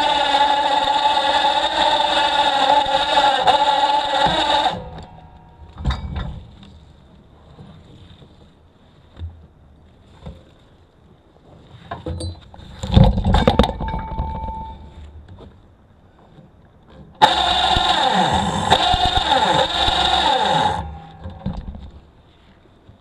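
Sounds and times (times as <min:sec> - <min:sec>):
steady whine: 0:00.0 - 0:07.5, 0:17.2 - 0:22.4
log knocking and clunking: 0:04.2 - 0:06.8, 0:20.6 - 0:22.1.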